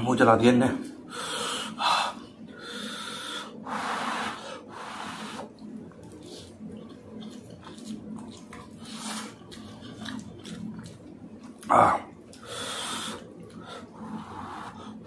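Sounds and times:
man blowing on food: 0:02.6 - 0:05.6
eating mouth sounds: 0:04.7 - 0:15.0.

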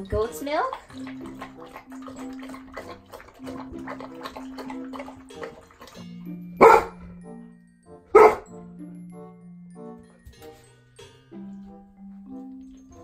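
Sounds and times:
dogs lapping milk: 0:00.0 - 0:07.4
background music: 0:00.0 - 0:13.0
dog barks: 0:06.6 - 0:07.0, 0:08.1 - 0:08.5.

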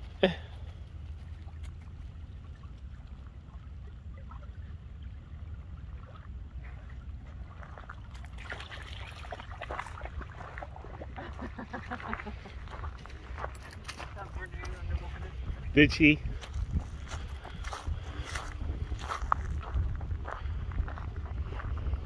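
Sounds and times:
steady low rumble: 0:00.0 - 0:22.0
small waves lapping on gravel shore: 0:06.6 - 0:15.3
footsteps crunching through dry leaves: 0:16.3 - 0:19.9.

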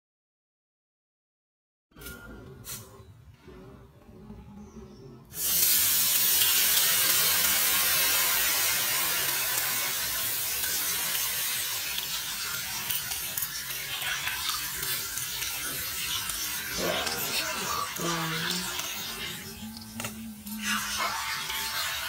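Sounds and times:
water pouring into metal wok: 0:05.4 - 0:22.0.

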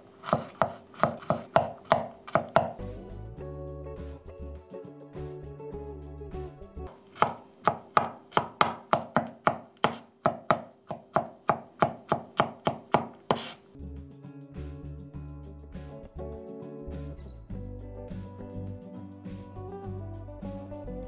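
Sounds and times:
knife chopping on wooden board: 0:00.2 - 0:02.8, 0:07.1 - 0:13.6
background music: 0:01.9 - 0:08.7, 0:13.7 - 0:21.0.

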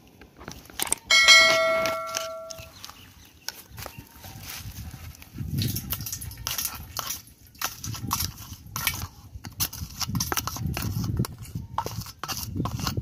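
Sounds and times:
knife scraping bait mash: 0:06.4 - 0:13.0.

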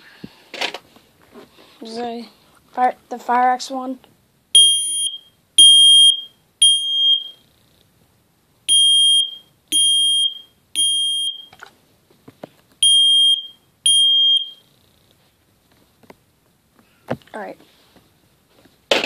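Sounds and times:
smoke alarm beeping: 0:04.6 - 0:07.4, 0:08.7 - 0:11.5, 0:12.8 - 0:14.6.

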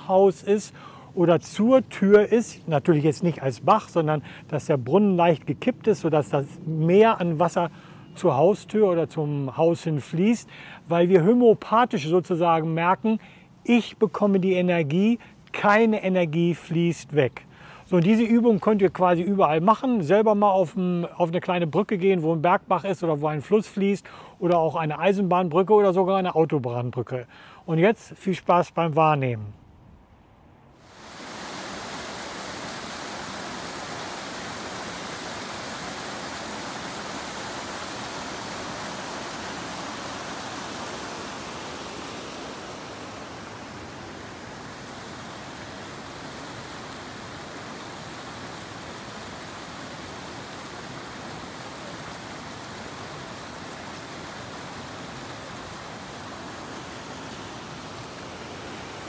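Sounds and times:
stream rushing over boulders: 0:00.0 - 0:00.6, 0:30.8 - 0:59.0.

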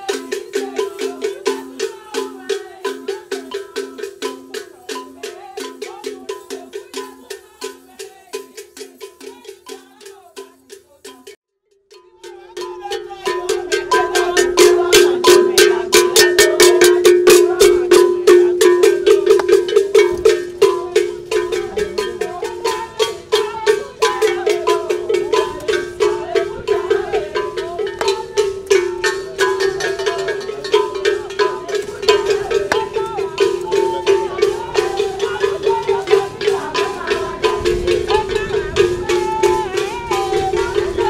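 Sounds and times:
metal bell rung rapidly: 0:00.0 - 0:41.0.

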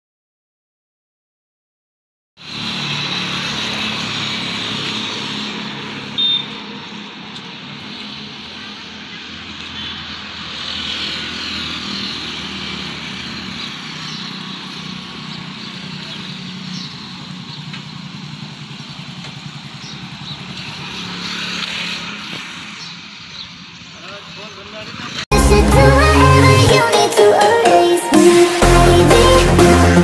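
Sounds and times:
sprayer hissing: 0:02.4 - 0:17.3, 0:21.0 - 0:23.4
motorcycle engine running: 0:12.0 - 0:23.4.

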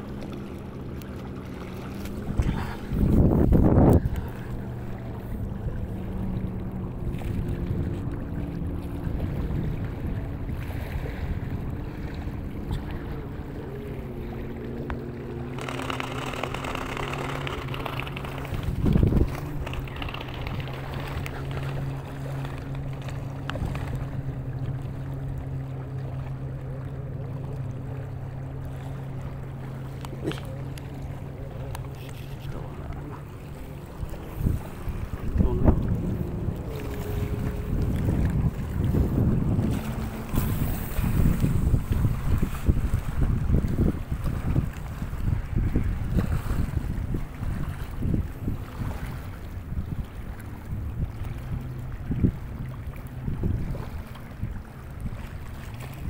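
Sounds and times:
low engine hum: 0:00.0 - 0:56.0
small waves lapping: 0:00.0 - 0:56.0
wind noise on microphone: 0:02.1 - 0:05.9, 0:15.4 - 0:21.5, 0:33.9 - 0:56.0.

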